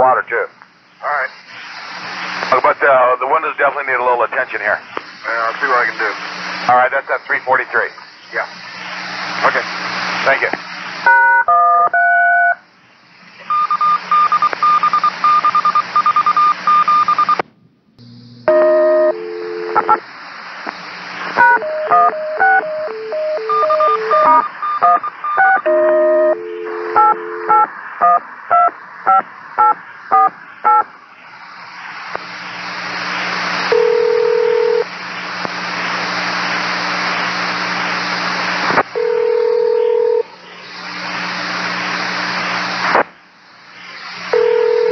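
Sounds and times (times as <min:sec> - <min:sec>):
radio hiss: 0:00.0 - 0:11.3, 0:12.6 - 0:17.4, 0:18.1 - 0:39.2, 0:40.0 - 0:44.9
two-tone dialing beeps: 0:11.1 - 0:12.6, 0:13.5 - 0:17.4, 0:18.5 - 0:20.0, 0:21.4 - 0:30.8
short steady tone: 0:21.4 - 0:27.6
pulsing beep: 0:21.4 - 0:30.8.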